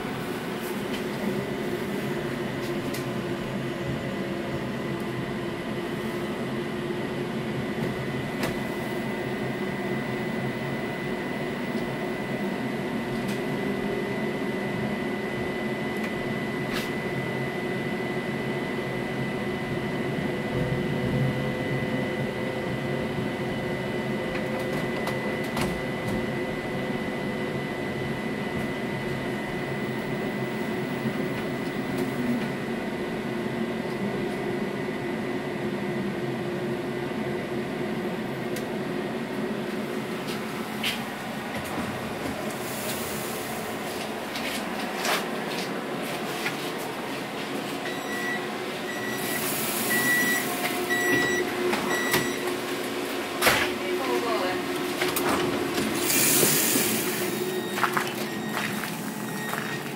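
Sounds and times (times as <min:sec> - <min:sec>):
tram hum: 0:00.0 - 0:59.9
high electrical whine: 0:47.8 - 0:59.9.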